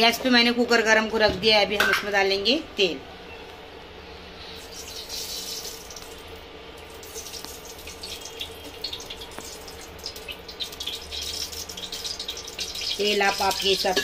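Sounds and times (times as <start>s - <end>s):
oil trickling and dripping: 4.4s - 14.0s.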